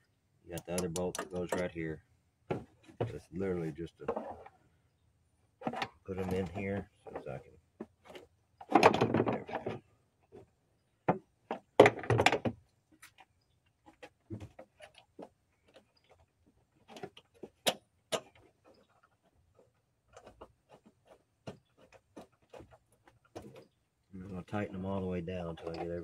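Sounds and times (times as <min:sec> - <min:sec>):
plastic tank clicking and rattling: 0:05.6 - 0:10.5.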